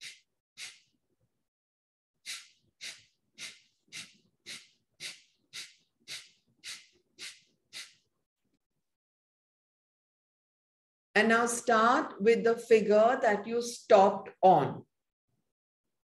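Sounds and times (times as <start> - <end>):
forceful exhalations through nose: 0.0 - 0.9, 2.2 - 8.0.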